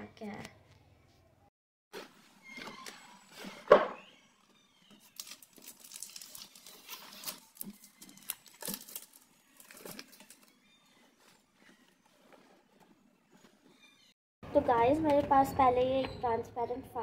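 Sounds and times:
books and plastic file rustling: 2.0s - 14.1s.

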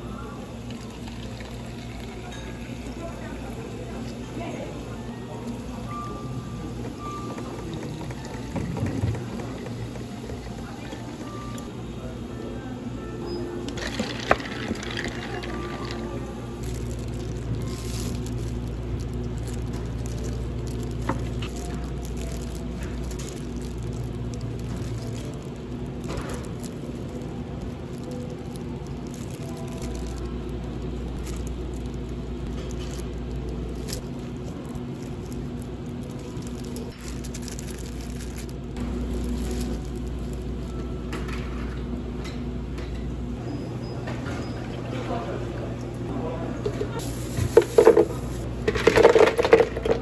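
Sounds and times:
steady low hum: 0.0s - 50.0s
plastic gloves rustling: 13.8s - 41.4s, 46.9s - 50.0s.

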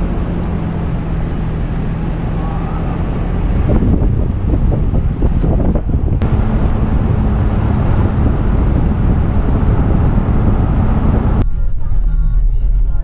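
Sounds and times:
car driving on road: 0.0s - 11.4s
wind noise on microphone: 3.0s - 11.4s.

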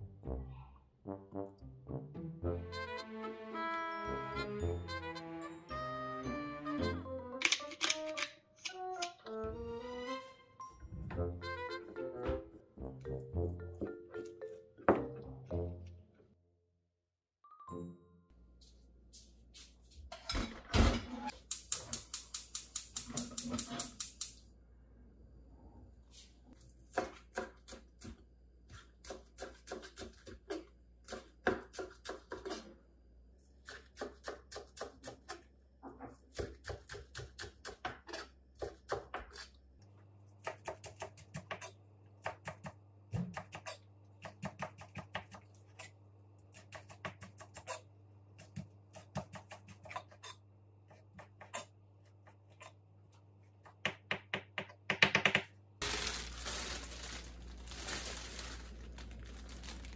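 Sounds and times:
plastic bag crinkling: 55.8s - 59.9s.

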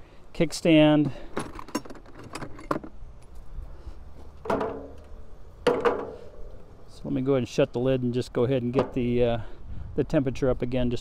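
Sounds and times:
metal hardware clinking and rattling: 1.3s - 2.9s, 4.4s - 6.4s.

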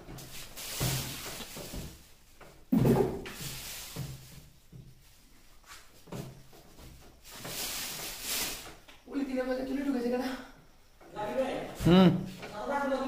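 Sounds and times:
hand rubbing painted wall: 0.0s - 9.0s.

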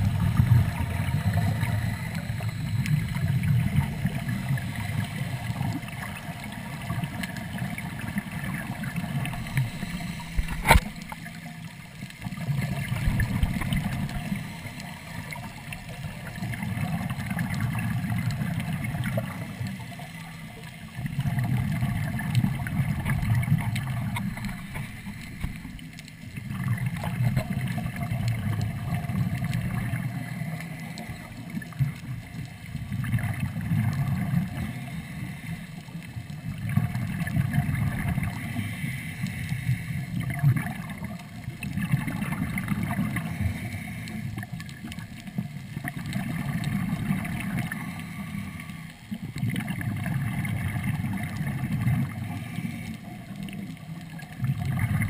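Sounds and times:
bubbles gurgling underwater: 0.0s - 55.0s
underwater hiss: 8.8s - 11.8s, 21.8s - 31.8s, 33.6s - 49.1s, 50.5s - 53.7s.

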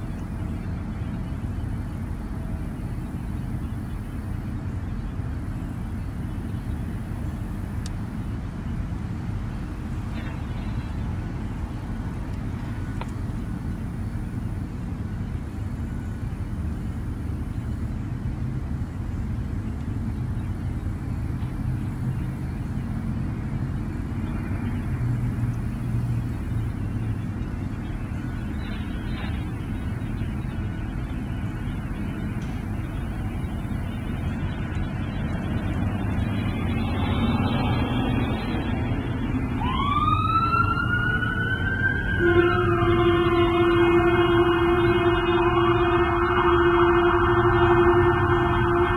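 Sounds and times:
steady low rumble: 0.0s - 48.9s
siren-like wail gliding upward: 32.9s - 48.9s.

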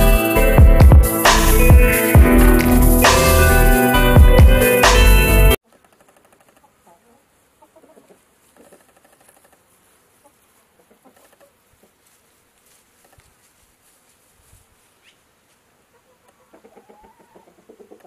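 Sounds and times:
high rising chirp: 0.0s - 5.6s
chickens clucking faintly: 6.5s - 12.3s, 14.8s - 18.0s.

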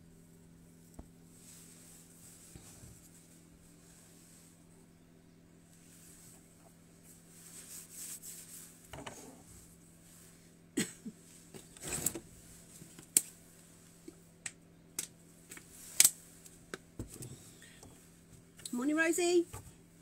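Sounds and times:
steady low hum: 0.0s - 20.0s
rustle: 5.6s - 10.5s.

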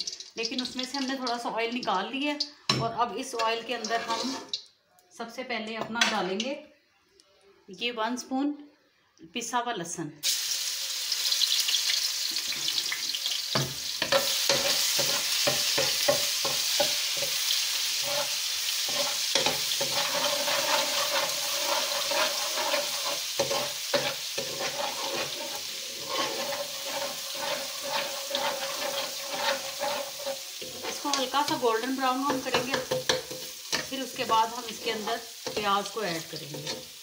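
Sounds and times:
garlic sizzling in hot oil: 0.0s - 4.7s, 10.2s - 37.0s
spoon scraping a wok: 3.3s - 4.7s, 13.6s - 37.0s.

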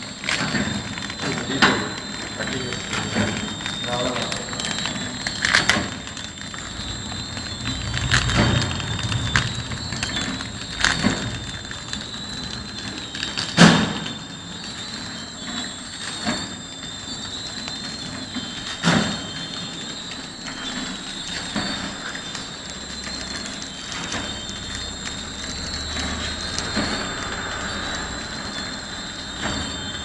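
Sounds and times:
machine clacking: 0.0s - 30.0s
wrapping machine whine: 0.0s - 30.0s.

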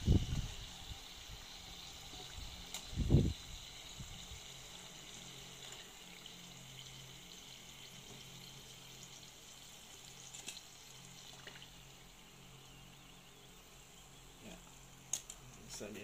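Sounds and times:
oil sizzling and crackling: 0.0s - 16.0s.

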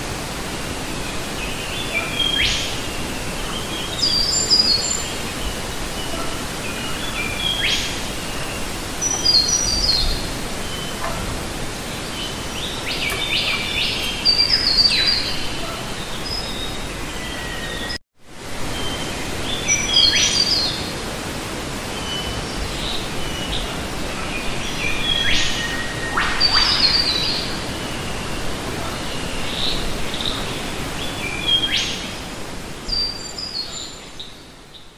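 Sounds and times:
birds chirping: 0.7s - 18.0s, 21.8s - 32.2s.

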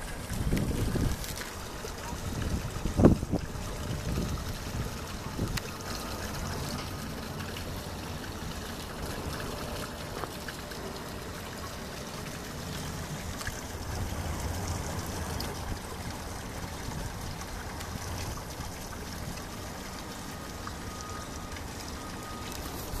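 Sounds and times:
water trickling from drain: 0.0s - 23.0s.

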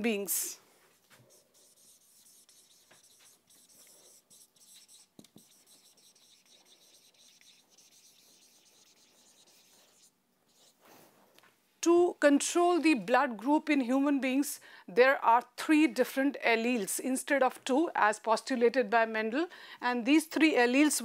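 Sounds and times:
marker scratching on whiteboard: 1.1s - 10.8s.

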